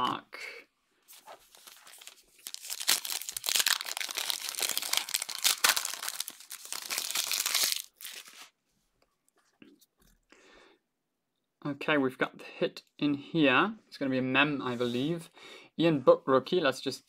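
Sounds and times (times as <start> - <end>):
wrapper crinkling and tearing: 1.2 - 8.5.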